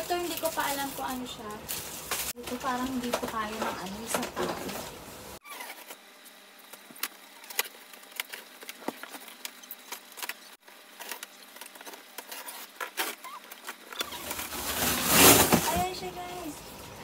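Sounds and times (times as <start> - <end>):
box cutter slitting tape and cardboard: 14.0 - 15.8.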